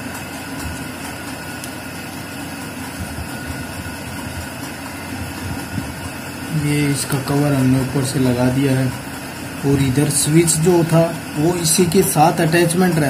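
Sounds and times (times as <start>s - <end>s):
mechanical hum: 0.0s - 13.0s.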